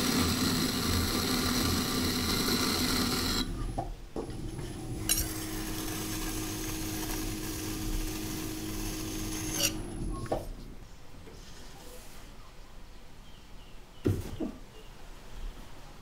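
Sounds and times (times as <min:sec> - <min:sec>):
knife blade scraping clay: 0:09.3 - 0:09.9.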